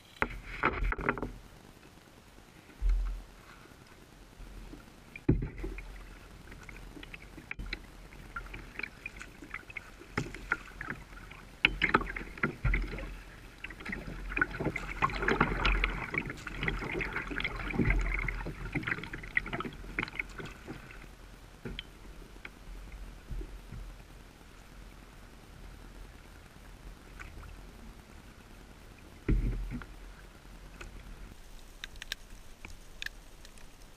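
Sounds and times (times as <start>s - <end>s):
water splashing against kayak hull: 0.0s - 1.6s, 2.4s - 25.7s, 26.9s - 33.9s
knocks and splashes: 0.2s - 1.4s, 5.2s - 21.9s, 29.2s - 29.9s.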